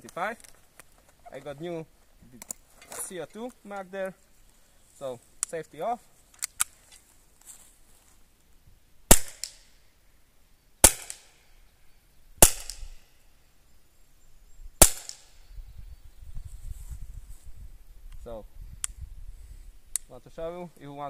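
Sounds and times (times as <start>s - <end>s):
airsoft pistol shots: 9.1s - 9.6s, 10.8s - 11.4s, 12.4s - 13.0s, 14.8s - 15.4s.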